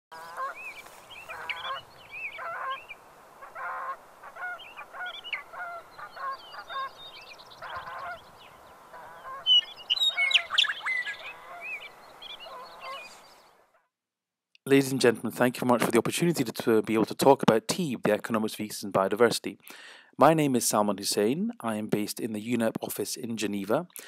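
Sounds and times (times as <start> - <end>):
waterfowl honking: 0.1 - 13.3.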